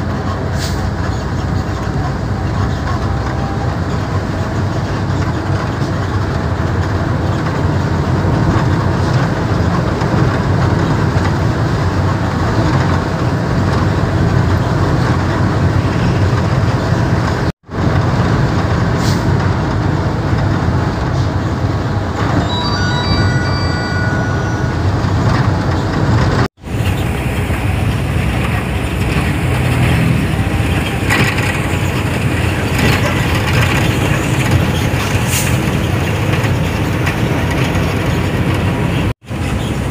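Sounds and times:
truck engine and road noise: 0:00.0 - 0:39.9
short high tones: 0:22.2 - 0:26.0.

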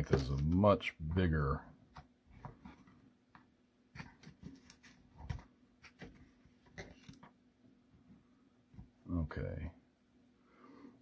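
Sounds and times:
small parts clicking and rustling: 0:00.0 - 0:00.6.

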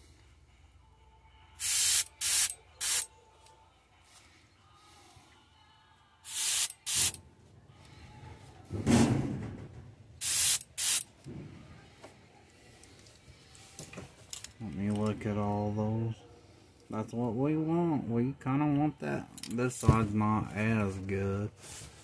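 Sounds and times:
airbrush spraying in hissing bursts: 0:01.6 - 0:03.0, 0:06.2 - 0:07.2, 0:10.2 - 0:11.1.

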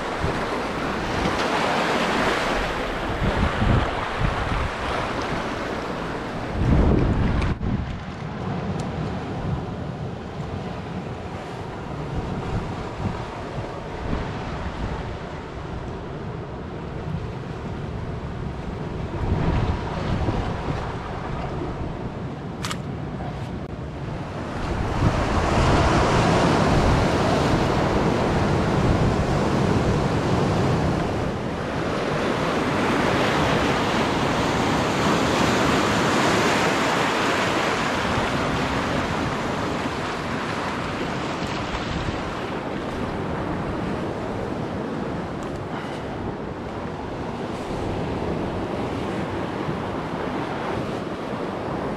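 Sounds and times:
surf washing against rocks: 0:00.0 - 0:22.1, 0:24.0 - 0:51.9
wind buffeting microphone: 0:00.0 - 0:51.9
sharp click: 0:22.6 - 0:22.9.

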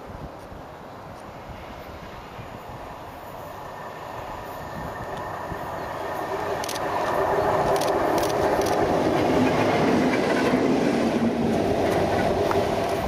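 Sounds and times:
diesel locomotive engine droning: 0:01.3 - 0:13.0
wheels rumbling on track: 0:01.4 - 0:13.0.

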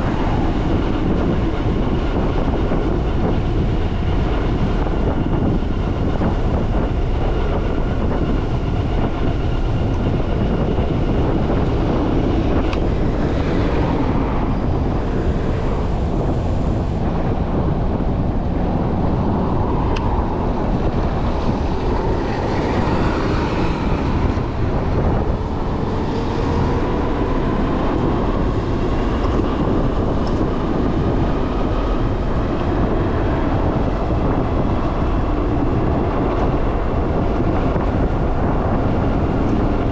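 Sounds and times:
wind rushing on microphone: 0:00.0 - 0:39.9.

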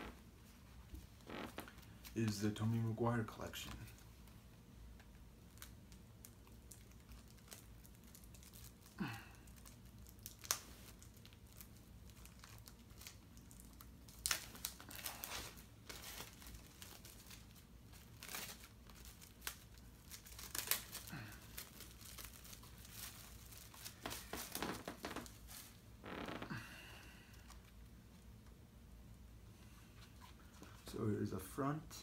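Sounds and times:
plastic wrap crinkling and tearing: 0:05.4 - 0:26.6.

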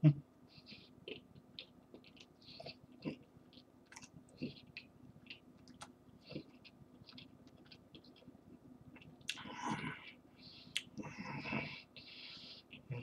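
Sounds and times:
chewing: 0:00.6 - 0:09.8.

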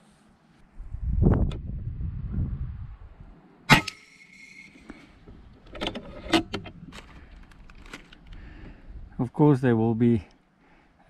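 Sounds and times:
air rifle shot: 0:03.7 - 0:04.0.

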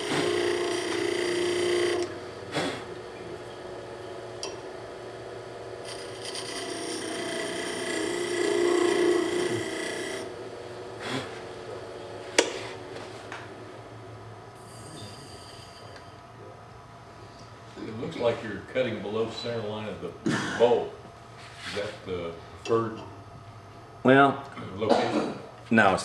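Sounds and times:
tool scraping wood on lathe: 0:00.0 - 0:02.9, 0:05.8 - 0:10.4
wood lathe spinning: 0:00.0 - 0:13.1.

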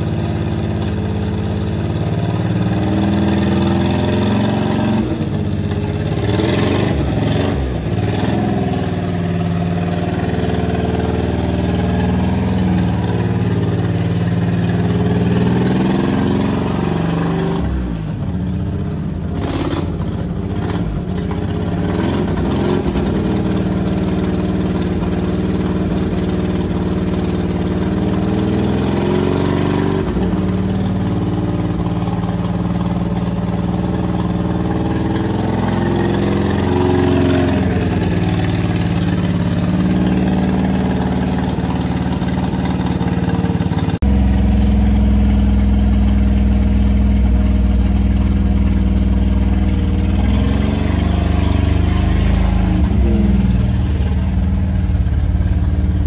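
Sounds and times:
small truck engine running: 0:00.0 - 0:56.0
engine drone inside cab: 0:43.7 - 0:56.0.

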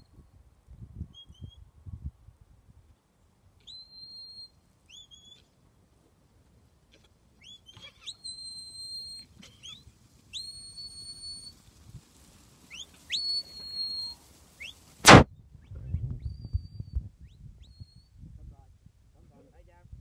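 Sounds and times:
high whistles: 0:03.6 - 0:05.4, 0:07.4 - 0:11.7, 0:12.7 - 0:15.3.

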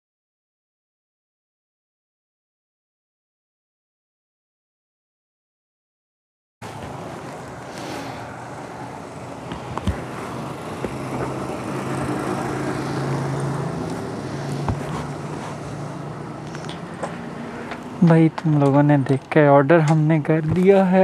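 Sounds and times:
vehicle engine running: 0:06.6 - 0:19.2
street noise: 0:06.6 - 0:21.0.

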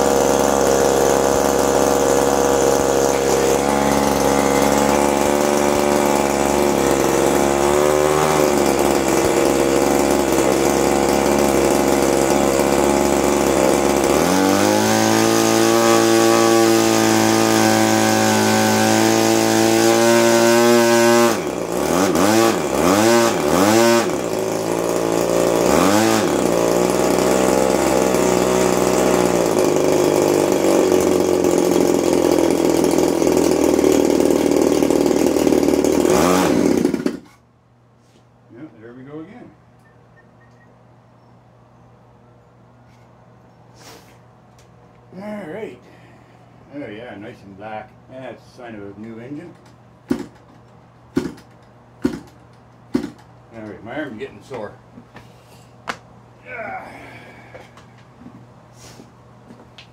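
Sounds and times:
two-stroke model engine running: 0:00.0 - 0:37.4, 0:51.2 - 0:53.7.

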